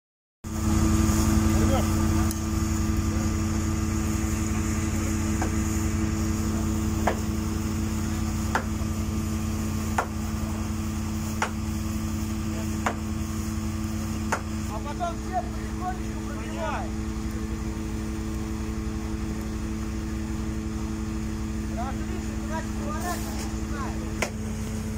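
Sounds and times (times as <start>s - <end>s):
drone of site machinery: 0.5s - 24.9s
sharp repeating knock: 8.5s - 8.8s.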